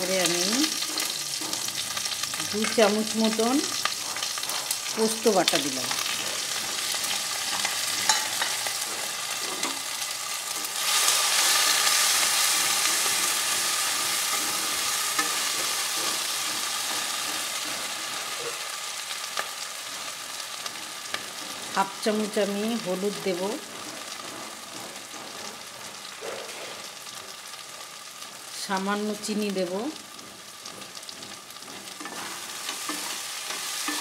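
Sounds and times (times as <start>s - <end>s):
food sizzling in hot oil: 0.0s - 34.0s
wooden spatula stirring: 30.2s - 34.0s.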